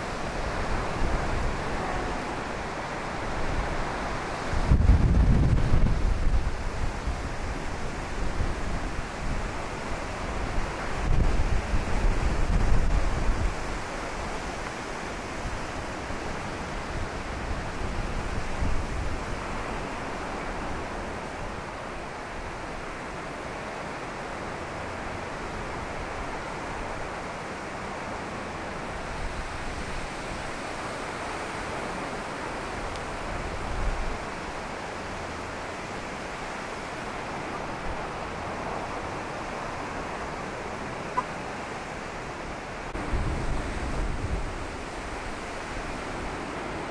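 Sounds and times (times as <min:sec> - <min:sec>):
strong wind rushing: 0:00.0 - 0:14.5, 0:42.8 - 0:46.9
wind gusts hitting microphone: 0:00.0 - 0:23.0, 0:28.6 - 0:46.9
choppy lake surf: 0:00.0 - 0:46.9.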